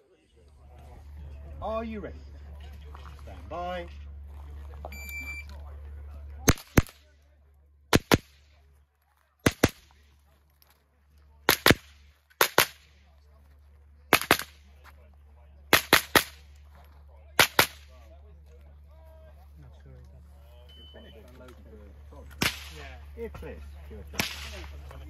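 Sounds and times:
rifle shots: 6.5 - 7.0, 7.9 - 8.5, 9.4 - 10.0, 11.4 - 13.0, 14.1 - 14.6, 15.7 - 16.5, 17.4 - 17.9, 22.4 - 22.9, 24.1 - 24.7.

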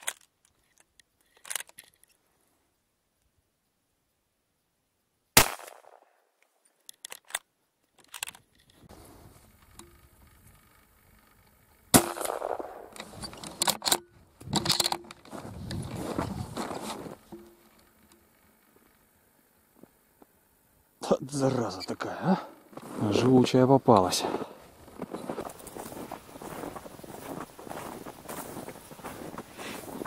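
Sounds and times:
sharp clicks: 0.0 - 2.2, 9.6 - 15.9
rifle shots: 5.4 - 6.1, 11.9 - 13.1
rustling handling noise: 12.2 - 19.1, 22.6 - 30.0.

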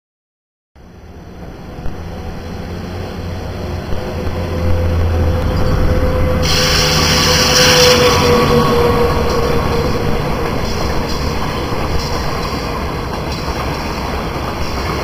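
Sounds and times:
train rumble: 0.8 - 15.0
wheel-on-rail hiss: 6.3 - 15.0.

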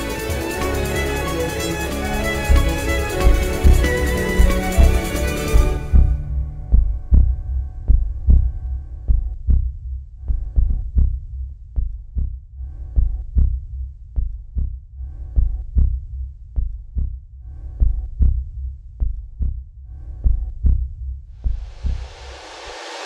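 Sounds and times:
quiet held chord: 0.0 - 8.3
heartbeat thumps: 2.5 - 22.2.

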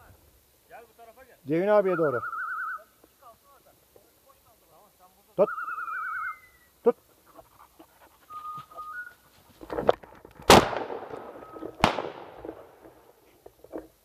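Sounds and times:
shotgun shots echoing: 10.5 - 12.8.

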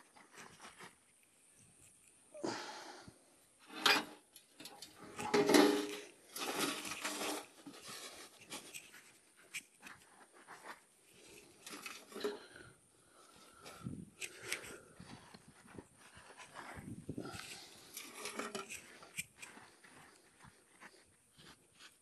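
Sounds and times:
soil scraped by hand: 5.3 - 12.5, 13.2 - 22.0
clods and grit clicking: 6.0 - 22.0.

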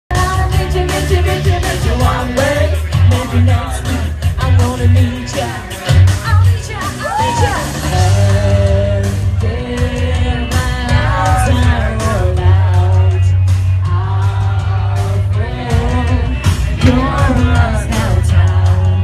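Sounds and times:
held bass line: 0.1 - 19.0
person singing: 7.2 - 19.0.

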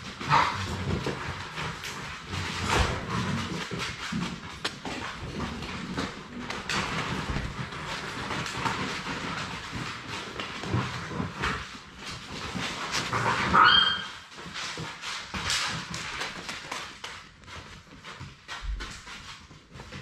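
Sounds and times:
puppies bumping and scuffling: 0.0 - 20.0
puppy claws clicking on wooden floor: 0.0 - 20.0
puppy yelp: 13.3 - 14.3.

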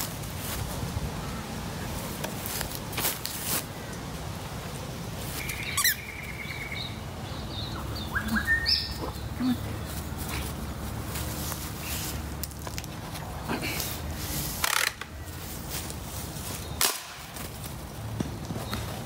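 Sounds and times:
squeaky ball squeaks: 5.4 - 6.0.

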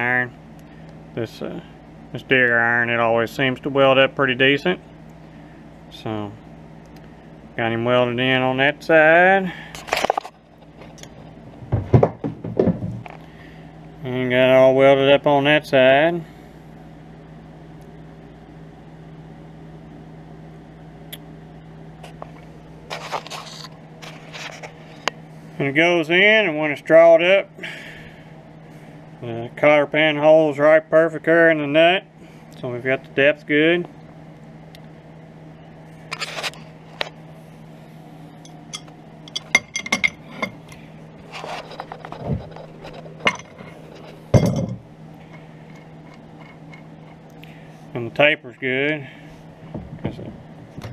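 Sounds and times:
shop machinery humming: 0.0 - 50.9
metal clinks knocks and scraping: 38.4 - 40.6, 41.3 - 44.8.

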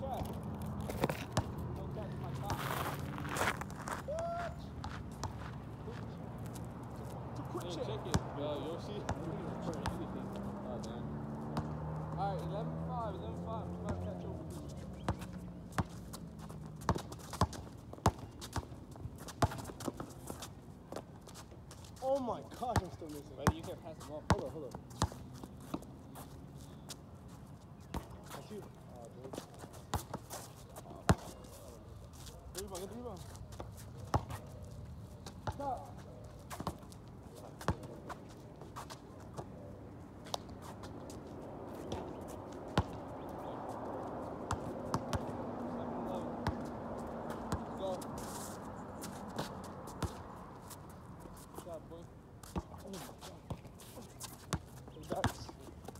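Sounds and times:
background noise: 0.0 - 55.9
footsteps on hard court: 0.1 - 8.3, 13.9 - 28.7, 46.4 - 51.7
basketball bouncing on asphalt: 0.1 - 10.6, 11.4 - 12.2, 13.8 - 27.0, 27.8 - 28.7, 29.3 - 31.4, 32.5 - 34.5, 35.2 - 39.6, 40.2 - 51.7, 52.4 - 55.9
basketball bouncing: 15.1 - 18.7, 42.7 - 43.0, 44.5 - 45.3, 46.4 - 46.7.

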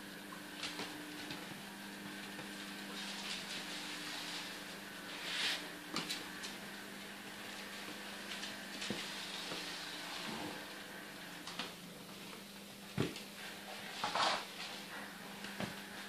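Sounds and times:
low steady hum: 0.0 - 16.0
mop swishing across wooden floor: 2.3 - 16.0.

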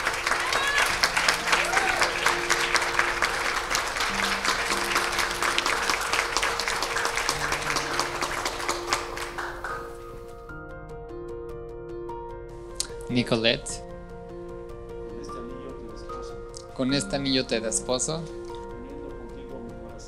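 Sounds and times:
people applauding: 0.0 - 10.4
soft instrumental music: 0.0 - 20.0.

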